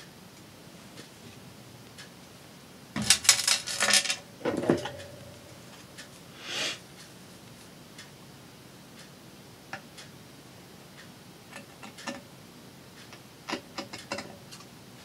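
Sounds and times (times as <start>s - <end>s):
craft tools clattering: 3.0s - 5.3s
rattling clicks: 3.0s - 5.4s.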